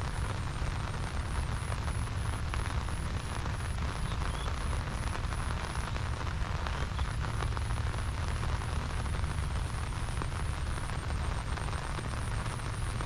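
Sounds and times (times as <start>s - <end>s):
rain patter: 0.0s - 13.0s.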